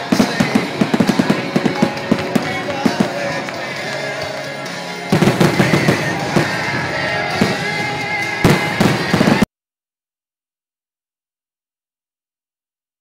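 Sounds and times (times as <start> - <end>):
fireworks bangs: 0.0 - 9.5
music: 0.0 - 9.5.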